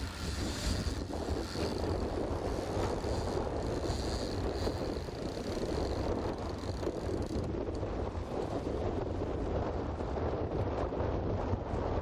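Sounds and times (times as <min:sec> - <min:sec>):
outboard motor running: 0:00.0 - 0:09.5
wind on microphone: 0:00.0 - 0:12.0.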